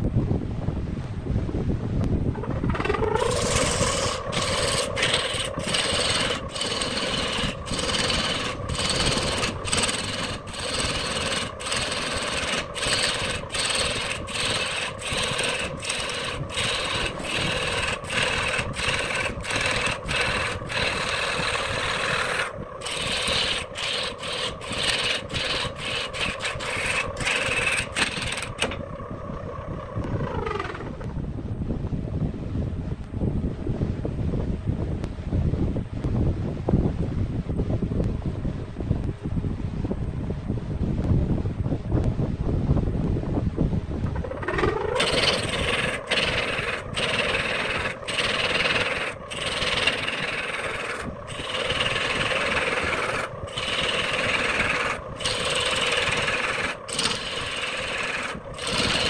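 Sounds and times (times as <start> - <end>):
lathe humming: 2.3 - 29.0, 44.1 - 59.0
gouge cutting spinning wood: 2.3 - 31.1, 44.1 - 59.0.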